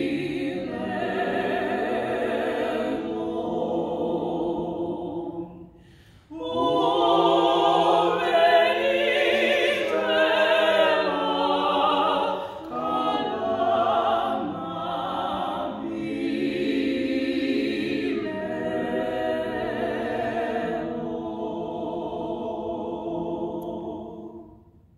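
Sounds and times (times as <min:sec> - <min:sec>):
vocal group singing a hymn: 0:00.0 - 0:24.8.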